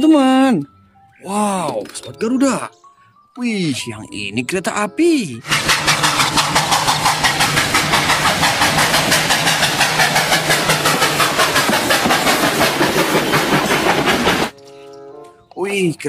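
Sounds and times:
steam locomotive chuffing: 5.4s - 14.5s.

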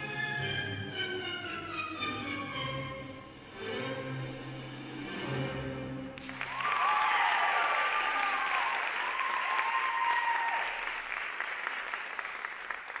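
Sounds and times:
audience applauding: 6.2s - 13.0s
high cheers: 6.3s - 12.1s.

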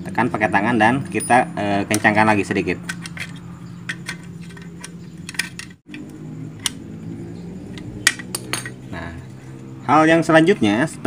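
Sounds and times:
steady low hum: 0.0s - 11.0s
pliers clicking on metal bolt: 2.8s - 6.8s.

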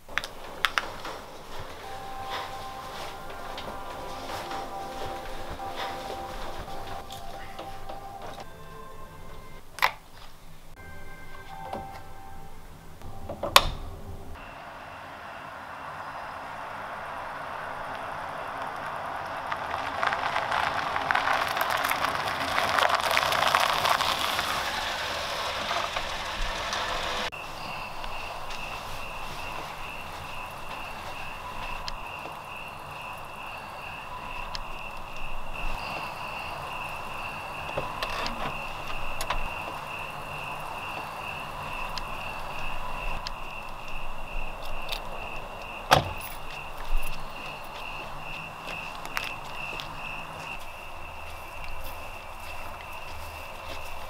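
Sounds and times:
crickets chirring: 0.0s - 11.7s, 12.4s - 54.0s
car driving past: 13.8s - 43.8s.

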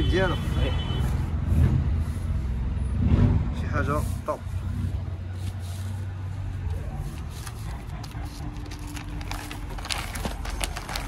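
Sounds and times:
paper rustling: 5.3s - 11.0s.

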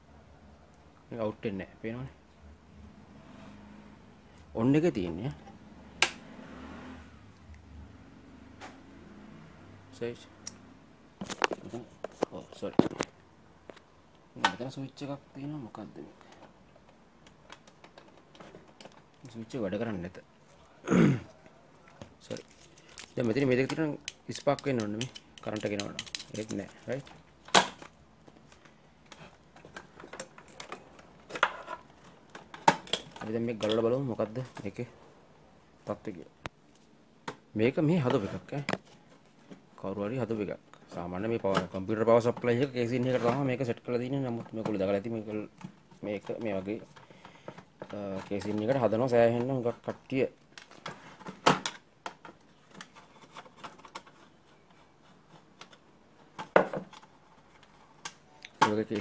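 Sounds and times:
clip leads clicking and knocking: 22.4s - 31.1s.

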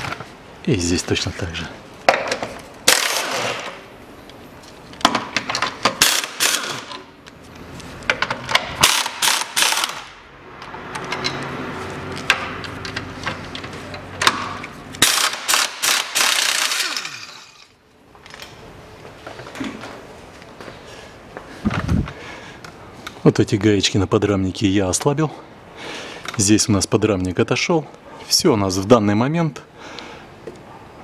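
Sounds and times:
impact wrench hammering: 5.1s - 7.1s, 8.2s - 10.1s, 14.2s - 17.7s.

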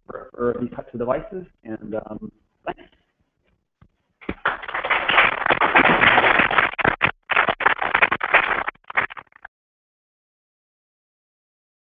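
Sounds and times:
audience applauding: 4.3s - 9.4s.

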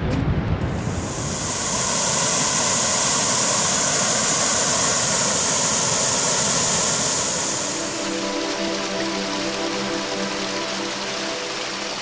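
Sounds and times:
waterfall rushing: 0.8s - 12.0s.

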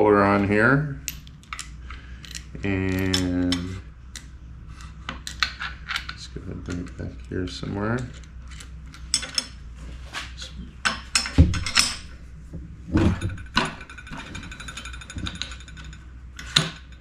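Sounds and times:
metal clicks and knocks: 10.8s - 17.0s.

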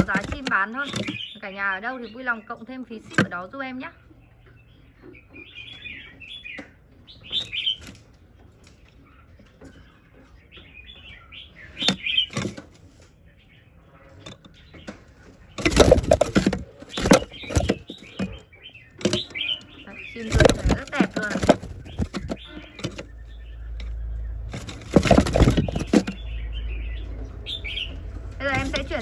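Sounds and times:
scuffling and knocks: 0.0s - 1.3s, 3.0s - 3.3s, 11.8s - 12.9s, 15.6s - 18.4s, 19.0s - 19.4s, 20.0s - 23.2s, 24.4s - 26.2s, 28.4s - 29.0s
bird chirping calls: 0.0s - 29.0s.

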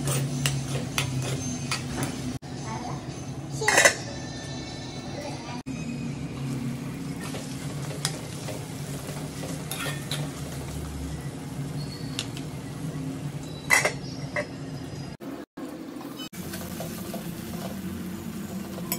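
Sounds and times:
food sizzling in a pan: 6.2s - 13.4s, 15.7s - 18.9s
metal spoon clinking on pan: 9.7s - 10.3s.

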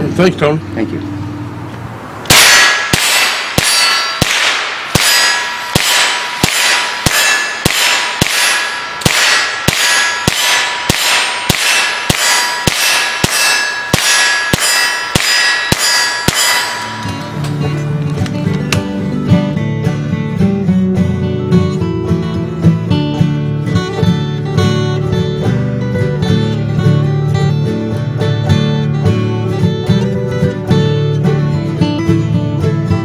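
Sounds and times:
gunshots: 2.3s - 17.4s
bullets clanging on steel target: 2.3s - 18.9s.

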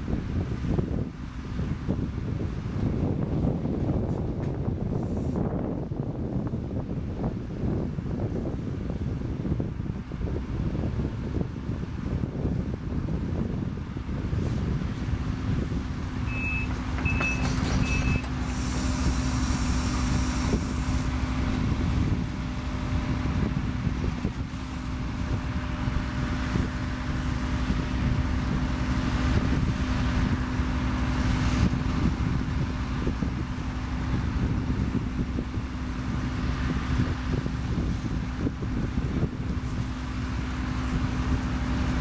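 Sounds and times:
excavator diesel engine humming: 0.0s - 42.0s
warning alarm high beeps: 16.3s - 18.2s.

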